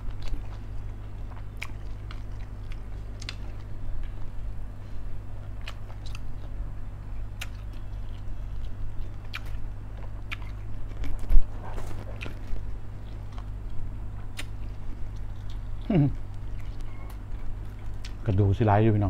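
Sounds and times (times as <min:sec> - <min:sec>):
wet chewing and lip smacks: 0:00.0 - 0:04.3, 0:05.4 - 0:06.6, 0:07.2 - 0:18.2
low steady hum: 0:00.0 - 0:19.0.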